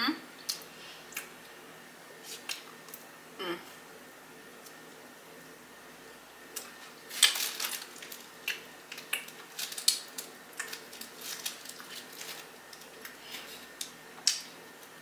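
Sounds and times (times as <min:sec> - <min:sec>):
crackle of bread bitten: 0:02.2 - 0:03.1, 0:06.5 - 0:15.0
bread crackling as torn: 0:06.6 - 0:14.5.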